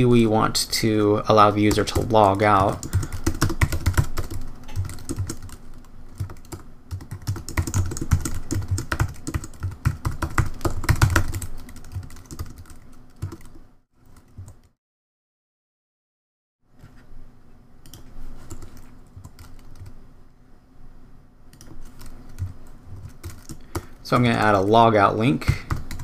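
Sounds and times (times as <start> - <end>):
typing on a computer keyboard: 1.7 - 14.7, 17.9 - 20.0, 21.5 - 23.9, 25.4 - 26.0.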